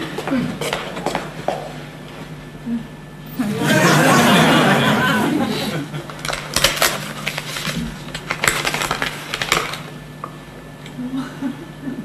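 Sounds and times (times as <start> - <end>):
paper envelope crackling: 6.1 - 9.9.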